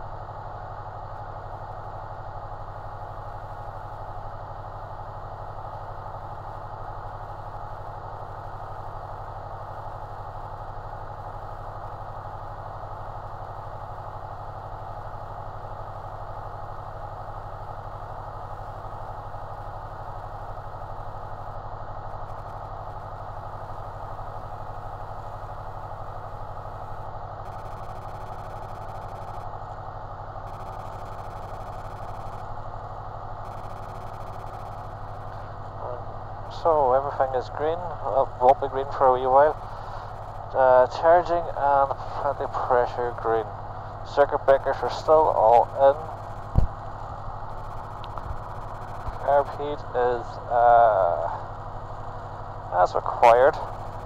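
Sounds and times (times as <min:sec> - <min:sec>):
aircraft piston engine idling: 0:14.6 - 0:54.0.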